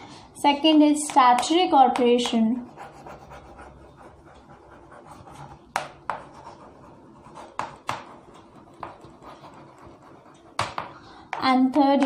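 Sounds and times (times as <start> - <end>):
chalk tapping on board: 1.0 - 12.0
chalk scratching on chalkboard: 2.6 - 10.8.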